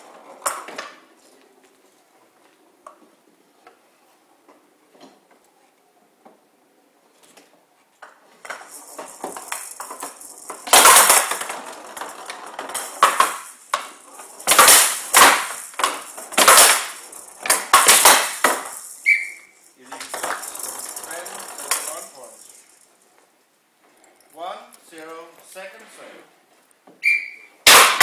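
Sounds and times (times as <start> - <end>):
ball beads rattling on wooden table: 8.2 - 23.2
bats striking ball: 9.1 - 11.6, 12.8 - 19.6, 27.0 - 28.0.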